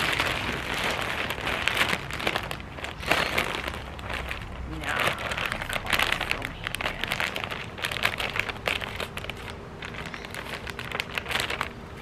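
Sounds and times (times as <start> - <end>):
plastic bag crinkling and rustling: 0.0 - 12.0.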